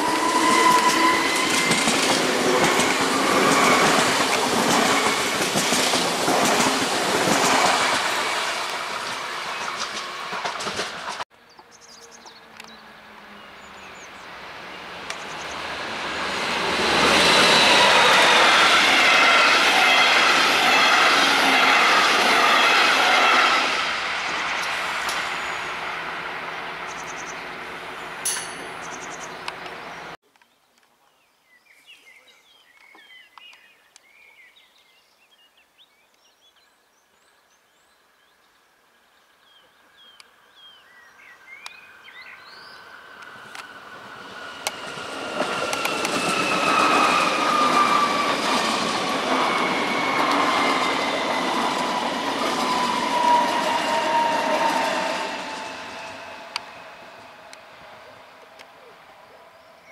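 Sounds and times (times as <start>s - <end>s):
train passing: 0.0s - 30.2s, 41.9s - 59.9s
birds chirping: 26.8s - 38.4s.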